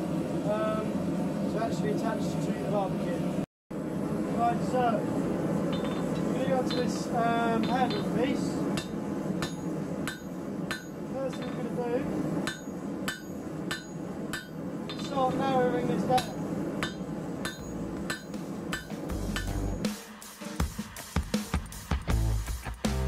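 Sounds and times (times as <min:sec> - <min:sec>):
hammer striking steel on anvil: 0:05.7 - 0:11.8, 0:12.4 - 0:19.8.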